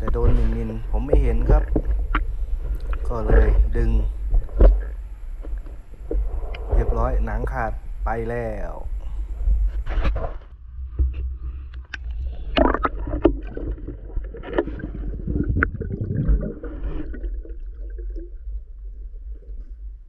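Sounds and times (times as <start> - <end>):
sharp clicks and knocks: 0.0 - 7.1
muffled underwater rumble: 0.0 - 20.0
water splashing and bubbling: 12.0 - 20.0.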